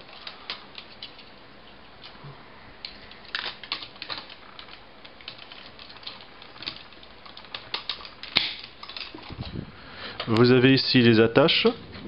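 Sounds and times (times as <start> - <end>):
plastic toy parts clicking: 0.0 - 1.3, 2.8 - 9.3.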